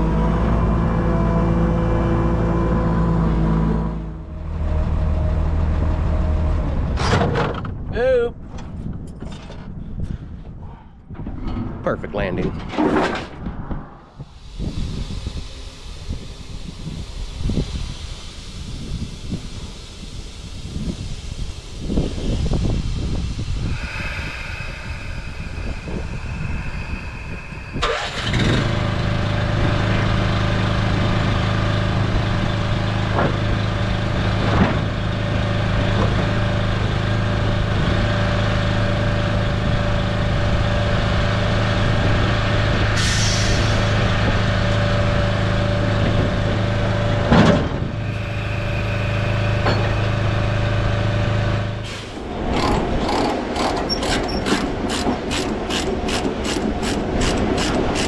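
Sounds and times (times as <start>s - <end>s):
diesel engine idling: 14.4s - 57.9s.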